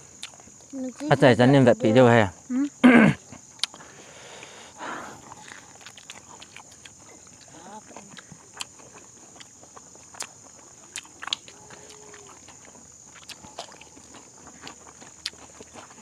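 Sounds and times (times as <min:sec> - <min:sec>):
high-pitched hiss: 0:00.0 - 0:05.6
chewing crisp food: 0:00.1 - 0:01.1, 0:02.7 - 0:04.6, 0:05.2 - 0:16.0.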